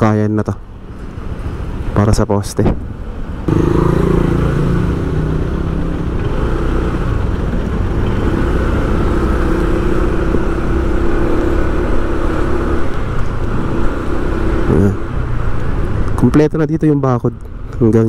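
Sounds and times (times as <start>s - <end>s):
road noise: 0.0s - 18.0s
vehicle engine running: 3.3s - 15.4s.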